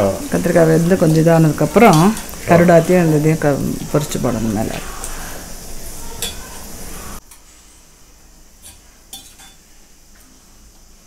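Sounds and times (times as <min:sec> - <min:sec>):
liquid sizzling in a pan: 0:00.0 - 0:11.0.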